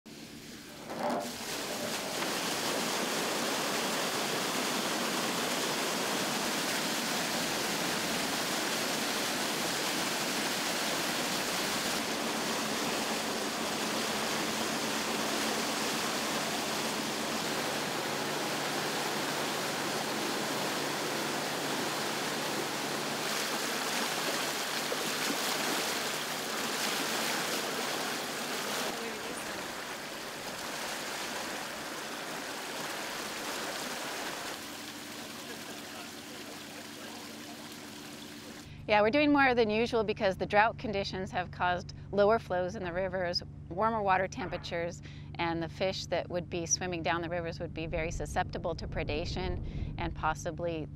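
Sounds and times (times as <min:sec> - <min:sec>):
water gushing from pipe: 0:00.4 - 0:38.7.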